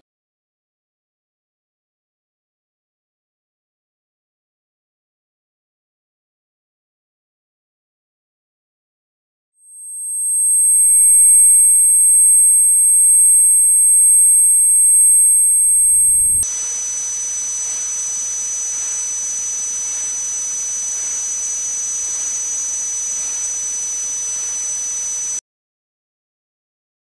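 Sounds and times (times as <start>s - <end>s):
high-pitched synthetic tones: 9.9s - 25.4s.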